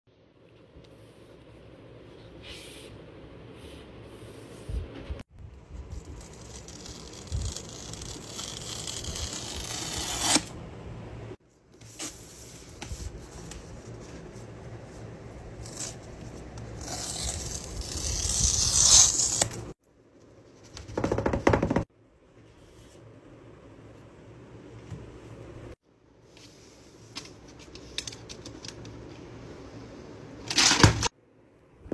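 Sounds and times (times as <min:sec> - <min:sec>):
paper tear-strips tearing: 0:06.1 - 0:10.5, 0:16.8 - 0:19.6.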